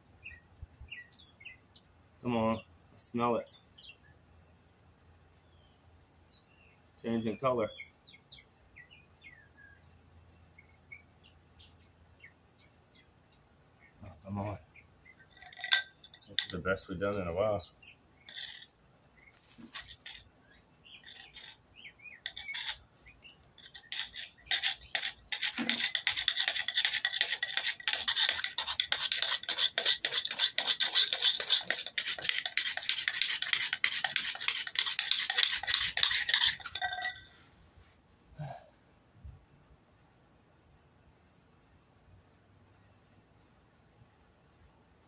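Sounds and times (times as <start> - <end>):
board scraping on concrete: 18.3 - 18.7, 19.4 - 20.2, 21.0 - 21.6, 22.2 - 22.8, 23.6 - 37.2.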